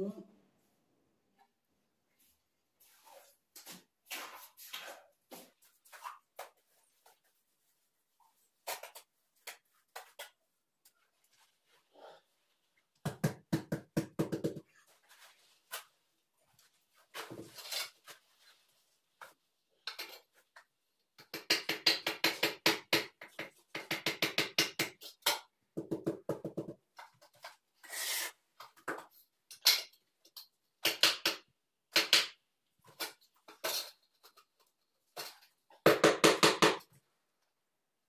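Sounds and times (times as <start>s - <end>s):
tools tapping ceramic tile: 19.8s - 26.8s, 28.8s - 32.4s.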